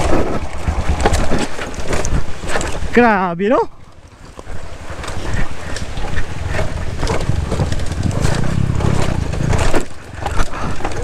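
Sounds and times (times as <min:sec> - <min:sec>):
dirt bike engine running: 0:05.6 - 0:11.0
tyres and suspension hitting rocks: 0:06.5 - 0:11.0.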